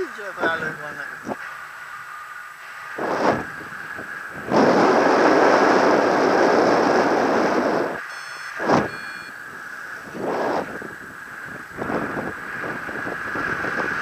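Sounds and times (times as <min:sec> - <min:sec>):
wind rushing over microphone: 0:00.3 - 0:01.4, 0:02.8 - 0:14.0
electronic beeps: 0:08.0 - 0:09.4.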